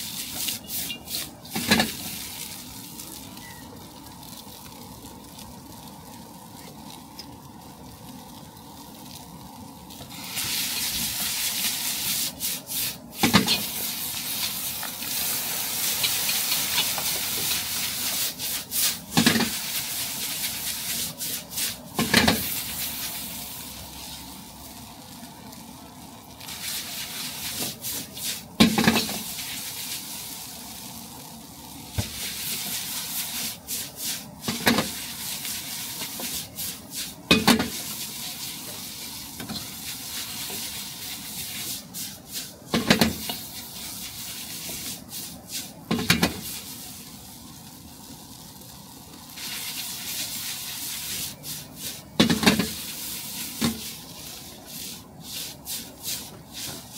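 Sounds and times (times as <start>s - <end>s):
noodles sizzling in a wok: 0.0s - 56.9s
ladle stirring and scraping: 0.2s - 2.1s, 12.1s - 19.8s.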